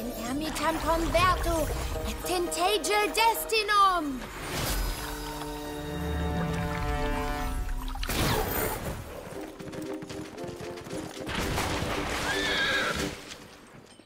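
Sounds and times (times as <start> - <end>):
music: 0.0 - 14.0
horse hooves clip-clopping: 8.8 - 14.0
horse whinnying: 12.1 - 13.2.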